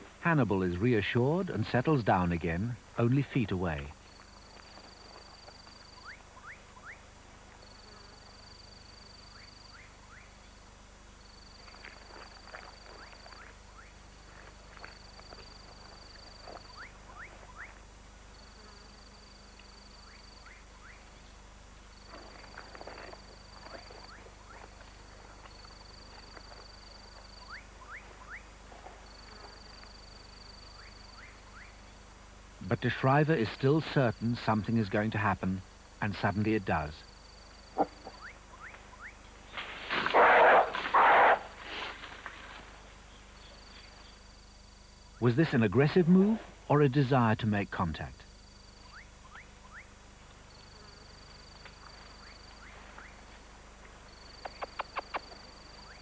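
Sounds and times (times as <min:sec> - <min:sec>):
insect buzzing trill: 0:03.9 - 0:32.2, 0:36.1 - 0:45.2, 0:48.3 - 0:56.0
rustling: 0:21.9 - 0:30.3, 0:37.6 - 0:44.0.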